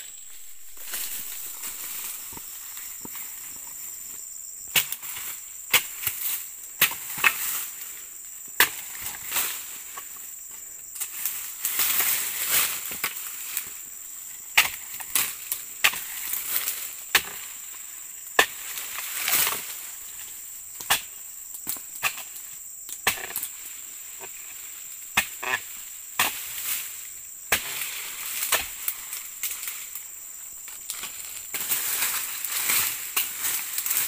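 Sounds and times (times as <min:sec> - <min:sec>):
fronds rustling and falling: 0:00.0 - 0:07.9, 0:11.0 - 0:13.9, 0:14.8 - 0:20.3, 0:26.3 - 0:34.0
chisel chopping palm fronds: 0:14.6 - 0:17.5, 0:18.4 - 0:19.6, 0:27.5 - 0:29.7.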